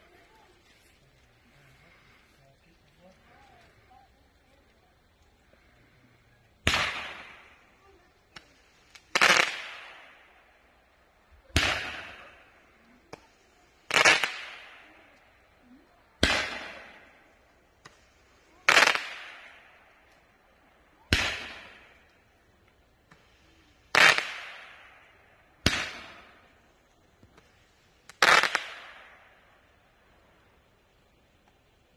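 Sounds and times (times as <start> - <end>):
fireworks bangs with echo: 6.6 - 10.6, 11.4 - 15.3, 16.1 - 20.3, 21.0 - 22.4, 23.9 - 26.6, 27.2 - 29.6
faint pops: 13.0 - 14.5, 17.8 - 20.3.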